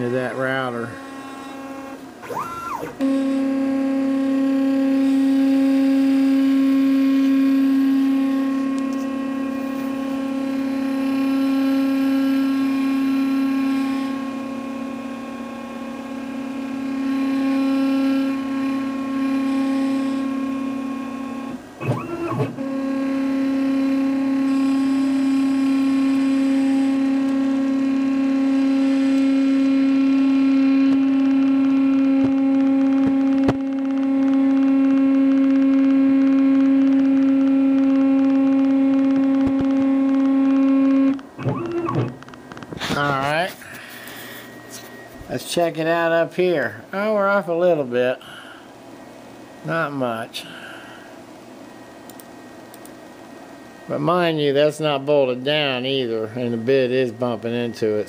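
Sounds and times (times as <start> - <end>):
stepper motors whining: 0.0 - 46.0.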